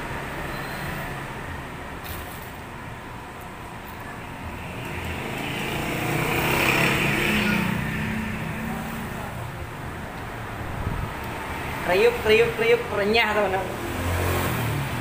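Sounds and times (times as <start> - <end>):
vehicle engine passing by: 4.4 - 9.6, 10.4 - 15.0.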